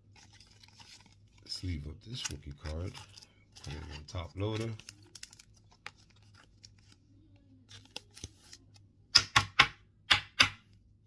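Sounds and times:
card sleeve rustling: 0.0 - 8.9.

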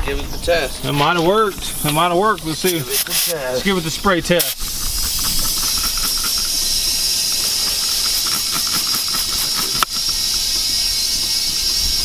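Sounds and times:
compressed air hissing: 0.6 - 12.0.

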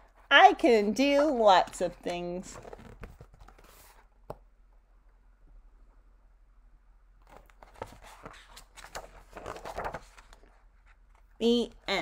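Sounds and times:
book pages rustling: 1.7 - 4.4, 7.2 - 11.3.

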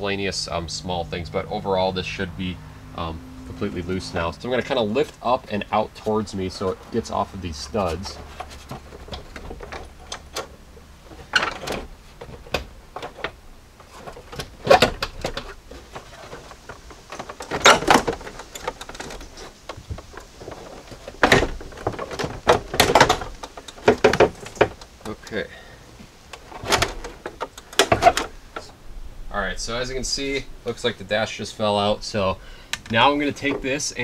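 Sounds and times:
dashboard clunking and rattling: 3.6 - 28.8.

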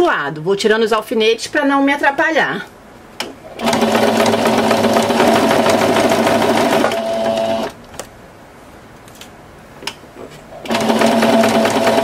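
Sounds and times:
sewing machine stitching: 3.5 - 7.7, 10.6 - 12.0.

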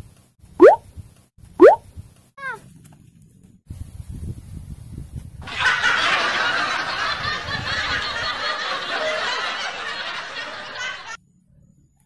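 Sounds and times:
loud laughter: 5.4 - 11.2.

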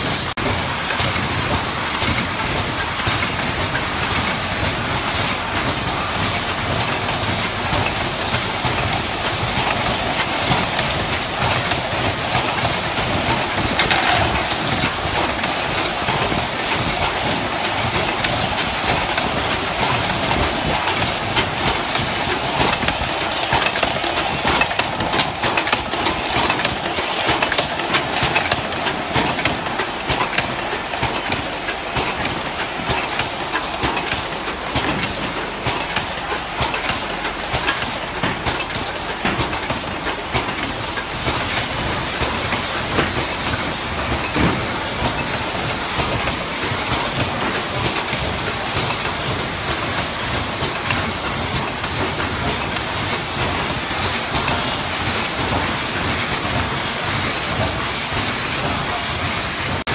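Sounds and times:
machine noise: 0.0 - 59.9
metal spray cans clattering: 13.7 - 14.9.

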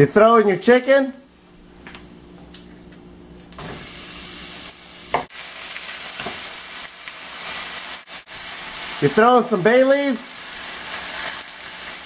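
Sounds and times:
chicken sizzling in hot oil: 3.6 - 12.0.

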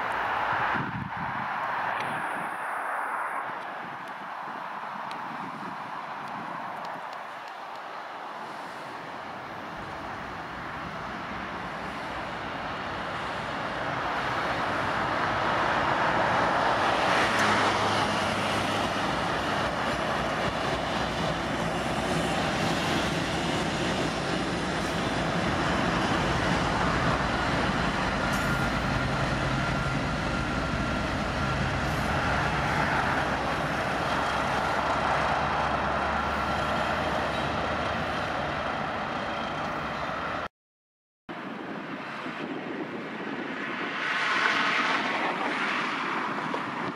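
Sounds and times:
wheels rumbling on rail: 0.0 - 40.5, 41.3 - 46.9
locomotive engines droning: 3.5 - 40.5.

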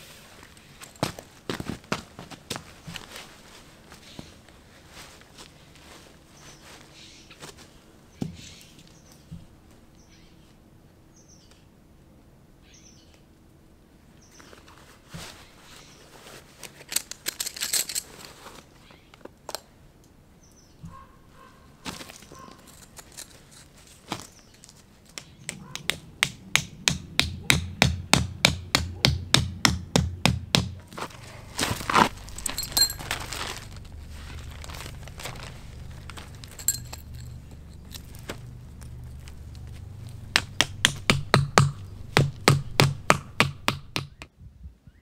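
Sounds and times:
birds chirping faintly: 20.3 - 25.9
nylon fabric rustling: 30.8 - 40.3.

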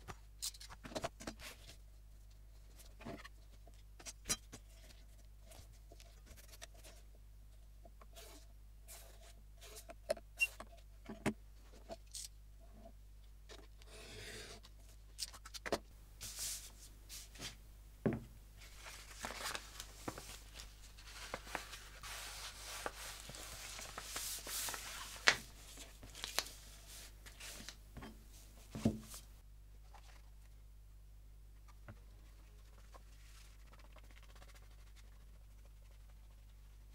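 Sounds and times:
paper and cloth rustling: 18.6 - 27.8.

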